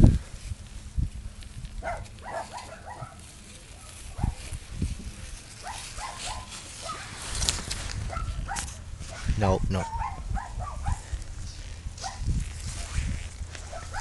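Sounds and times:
puppy whimpering: 9.8 - 10.2.

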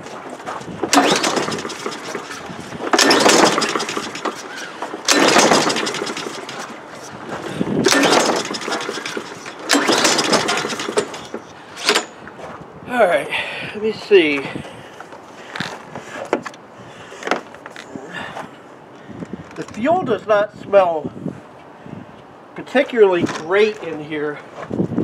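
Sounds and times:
recoil starter pulls cranking engine: 0.8 - 12.2.

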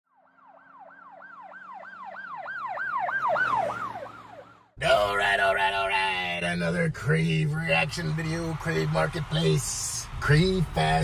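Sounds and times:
siren yelping: 0.2 - 5.6.

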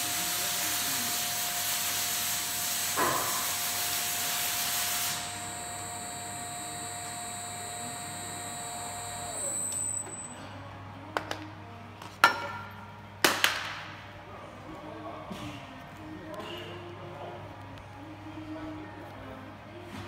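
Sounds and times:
hydraulic hiss: 0.0 - 9.8
lift table drive whine: 5.2 - 10.4.

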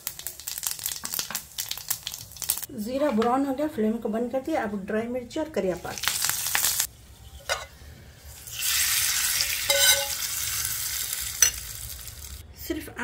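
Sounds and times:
hot oil sizzling: 0.0 - 2.7, 5.6 - 12.4
metal spoon scraping pan: 7.2 - 7.9, 9.3 - 10.3.

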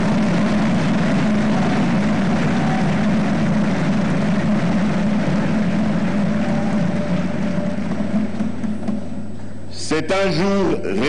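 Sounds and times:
large audience applauding: 0.0 - 8.6.

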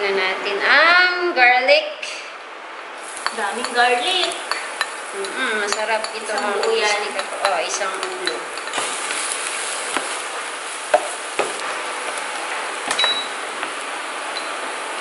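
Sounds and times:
garlic sizzling in oil: 3.0 - 15.0.

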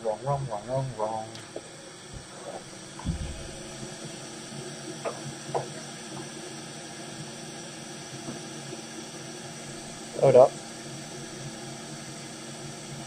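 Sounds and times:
faint hum: 0.0 - 8.0
steady hiss: 0.0 - 13.0
low thump: 3.0 - 3.7.

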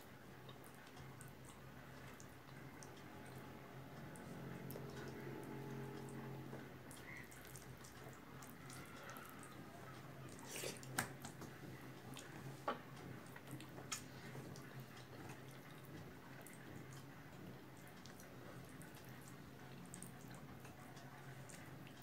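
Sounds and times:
steady low hum: 0.0 - 8.4
wet mouth sounds: 10.3 - 11.1.

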